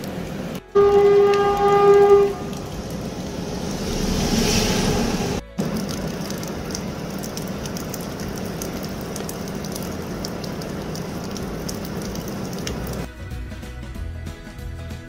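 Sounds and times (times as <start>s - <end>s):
heavy rain pouring: 0.0s - 13.1s
steady low hum: 2.3s - 8.7s
background music: 13.0s - 15.0s.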